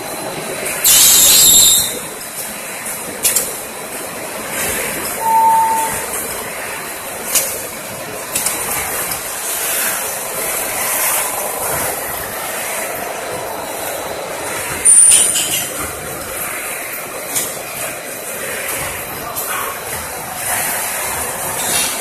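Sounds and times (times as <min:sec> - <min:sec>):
machinery running: 0:00.0 - 0:22.0
short high squeal: 0:00.8 - 0:02.1, 0:05.2 - 0:06.2.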